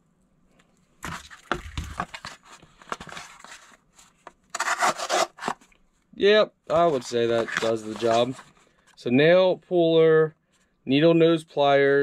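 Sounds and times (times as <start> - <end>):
knife cutting cardboard: 4.5 - 5.6.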